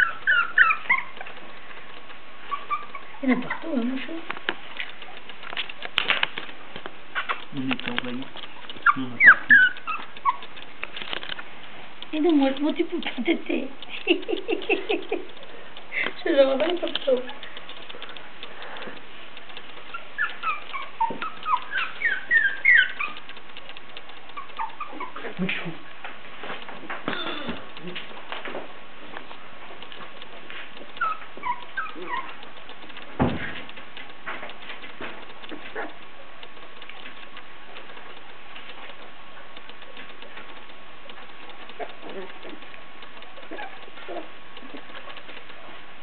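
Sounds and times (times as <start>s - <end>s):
puppies whimpering: 0.0s - 1.4s, 2.4s - 4.2s, 8.5s - 10.7s, 19.8s - 23.4s, 24.3s - 25.6s, 30.8s - 32.5s, 43.3s - 45.2s
puppies grunting and squeaking: 0.0s - 46.0s
puppies scuffling: 0.0s - 46.0s.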